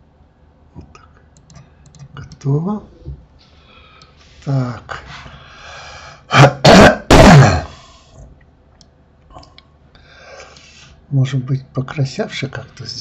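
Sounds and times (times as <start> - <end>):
man clearing his throat: 6.3 - 7.8.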